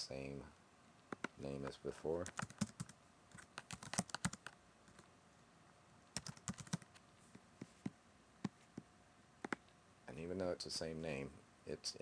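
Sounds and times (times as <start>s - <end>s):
computer keyboard typing: 1.1s - 1.4s, 2.2s - 5.0s, 6.2s - 7.0s.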